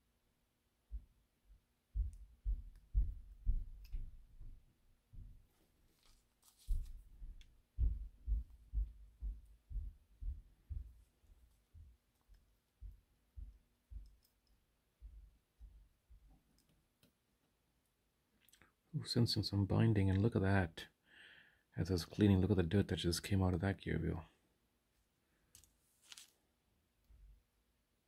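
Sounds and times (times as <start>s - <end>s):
soft low handling thumps: 6.7s - 12.0s.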